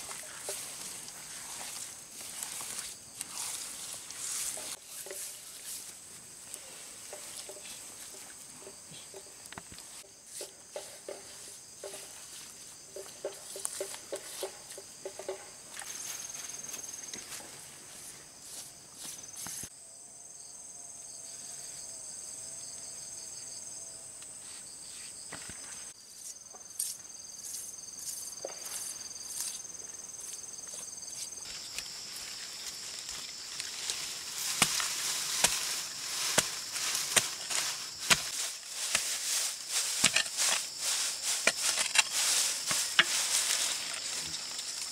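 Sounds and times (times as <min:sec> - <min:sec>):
hands working wet mud: 0:00.0 - 0:05.9, 0:30.2 - 0:44.9
insects chirping: 0:00.0 - 0:44.9.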